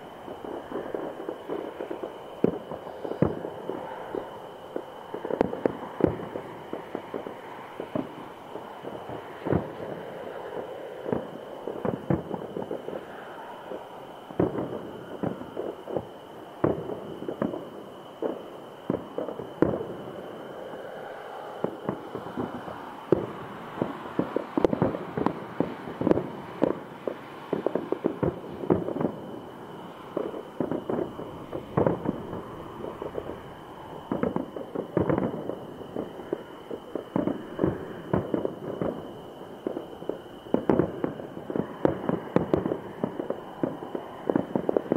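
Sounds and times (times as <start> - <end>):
firework shells bursting: 21.6 - 44.9.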